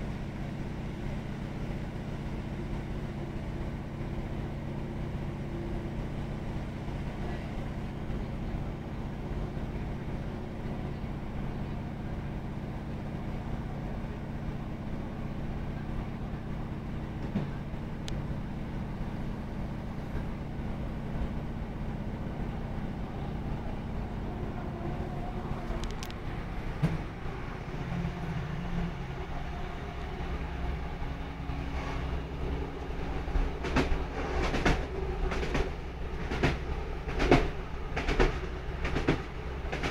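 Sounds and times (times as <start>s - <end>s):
diesel engine drone: 0.0s - 39.9s
wheel and track rumble: 0.0s - 39.9s
wheels clicking over rail joints: 32.8s - 39.9s.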